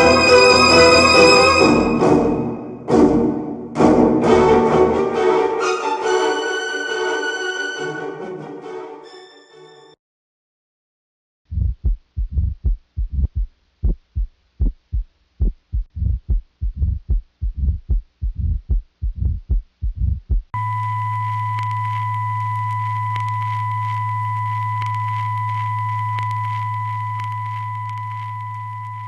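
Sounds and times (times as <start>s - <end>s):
heartbeat thumps: 11.5s - 20.6s
low hum: 15.4s - 29.0s.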